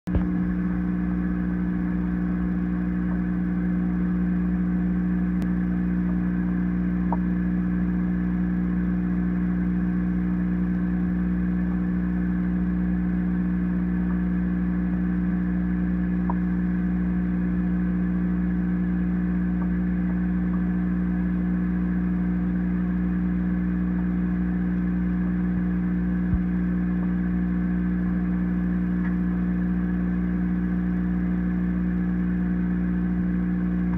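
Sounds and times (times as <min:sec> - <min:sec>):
aquarium pump motor humming: 0:00.1 - 0:33.9.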